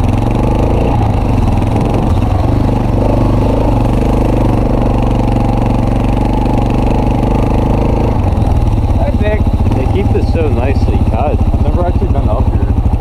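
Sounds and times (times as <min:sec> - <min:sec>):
quad engine running: 0:00.0 - 0:13.0.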